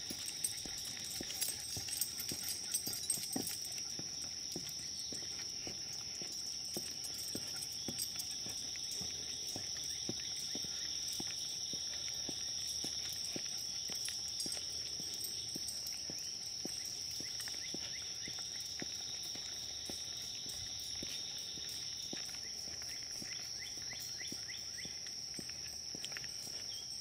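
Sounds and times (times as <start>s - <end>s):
footsteps on paved path: 0.0s - 27.0s
high-pitched insect drone: 0.0s - 27.0s.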